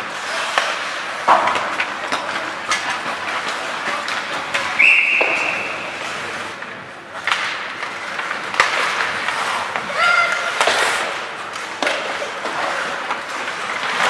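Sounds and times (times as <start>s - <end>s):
hockey sticks and puck clacking: 0.0s - 14.0s
referee's whistle: 4.8s - 5.8s.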